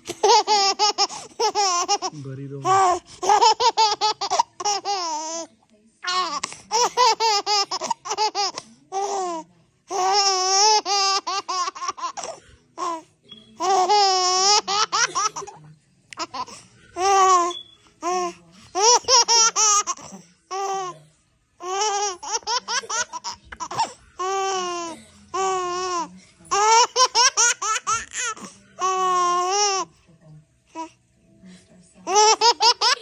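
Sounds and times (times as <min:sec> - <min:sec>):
baby giggling: 0:00.1 - 0:05.5, 0:06.1 - 0:13.0.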